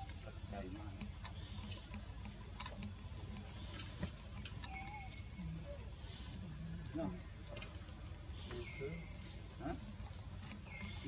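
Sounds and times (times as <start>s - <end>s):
faint clicks: 0.0s - 5.8s
high-pitched insect chorus: 0.0s - 11.0s.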